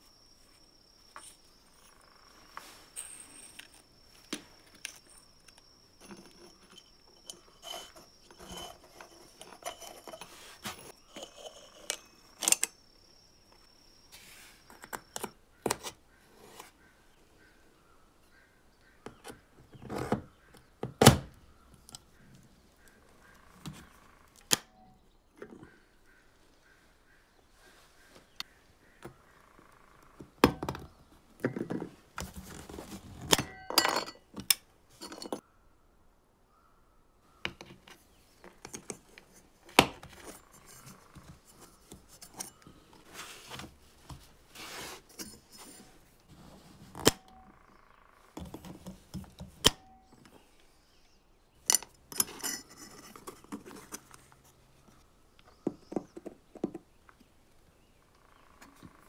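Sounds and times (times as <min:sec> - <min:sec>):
metal parts clinking on workbench: 0:06.0 - 0:12.8, 0:33.3 - 0:35.4, 0:51.6 - 0:53.5.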